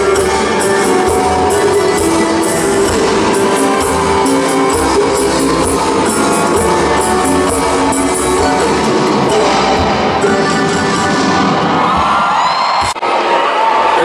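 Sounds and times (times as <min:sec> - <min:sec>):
bass and drums: 0:00.0 - 0:10.2
accordion: 0:00.0 - 0:11.6
guitar strumming: 0:00.0 - 0:12.0.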